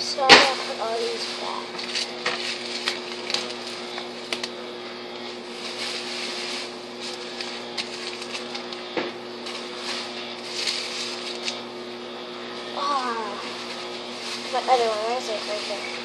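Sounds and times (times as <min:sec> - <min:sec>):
steady low hum: 0:00.0 - 0:16.0
paper packets rustling: 0:00.4 - 0:04.6, 0:05.2 - 0:11.6.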